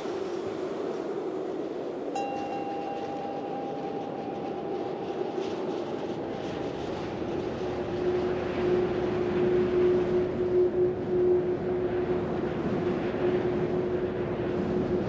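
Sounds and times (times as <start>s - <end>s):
lower held tone: 2.1s - 15.0s
held high tone: 2.2s - 6.0s.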